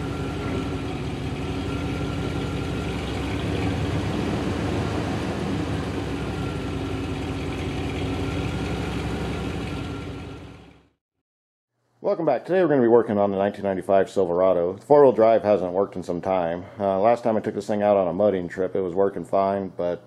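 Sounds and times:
truck engine idling: 0.0s - 11.0s.

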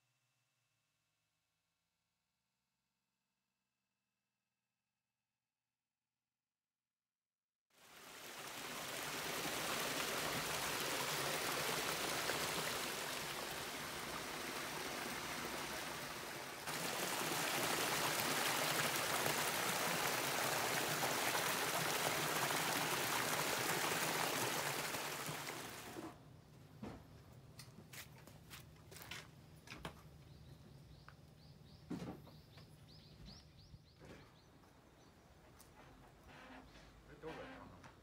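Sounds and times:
running water rushing: 7.8s - 26.1s.

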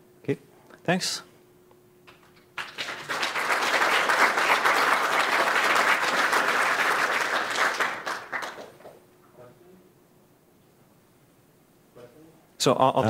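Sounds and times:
audience applauding: 2.1s - 9.0s.

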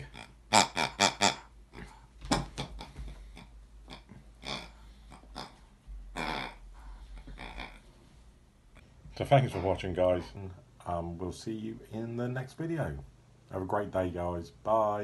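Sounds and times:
squeaky pig toy grunting: 0.0s - 7.9s.

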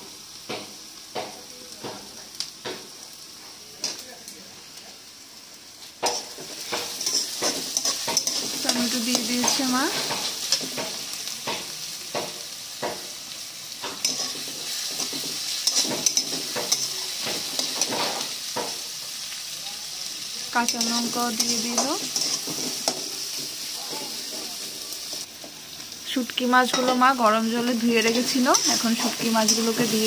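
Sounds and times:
vegetables sizzling in hot oil: 0.0s - 30.0s
metal spatula scraping a pan: 6.0s - 11.0s, 13.8s - 18.7s, 20.7s - 24.6s.

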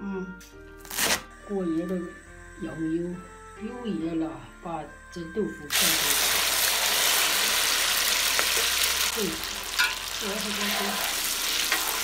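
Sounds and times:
tofu sizzling in hot oil: 5.7s - 12.0s
metal spatula scraping wok: 9.6s - 12.0s.

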